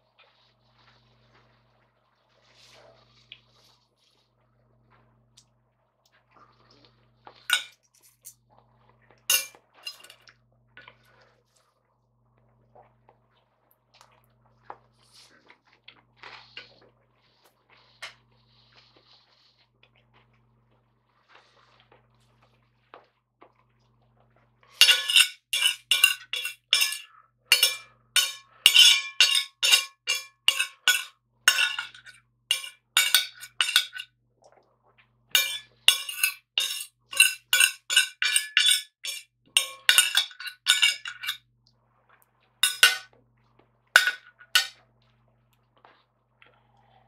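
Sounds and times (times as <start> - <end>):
cutlery laid down on plate: 7.5 - 7.7, 9.3 - 10.1, 24.8 - 34.0, 35.4 - 41.4, 42.6 - 43.0, 44.0 - 44.7
knife and fork scraping a plate: 9.3 - 10.1, 24.8 - 34.0, 35.4 - 41.4, 42.6 - 43.0.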